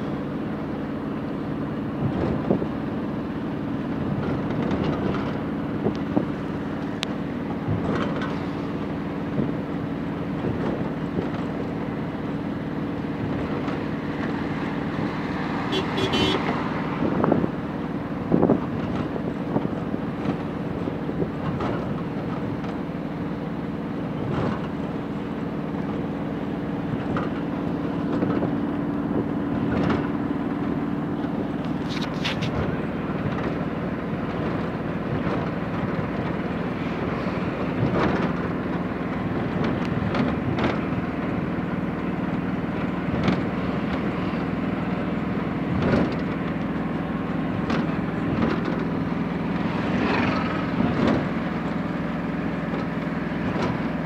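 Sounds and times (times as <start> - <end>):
engine hum: 0.0 - 54.0
road noise: 0.0 - 54.0
wind noise: 13.1 - 21.9.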